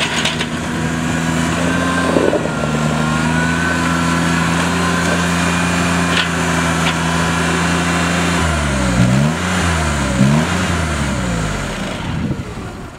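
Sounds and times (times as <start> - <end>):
tractor engine running: 0.0 - 12.9.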